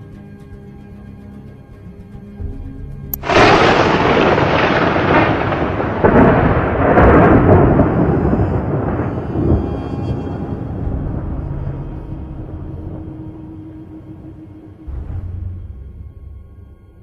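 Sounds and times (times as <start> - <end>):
thunder crack: 3.2 - 16.0
rolling thunder rumble: 3.2 - 17.0.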